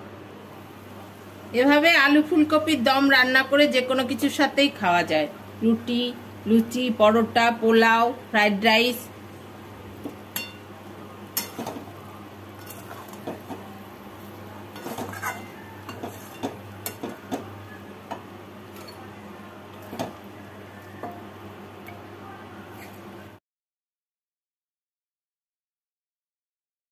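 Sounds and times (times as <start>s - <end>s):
spatula scraping metal pan: 12.6s - 13.4s, 14.8s - 17.4s.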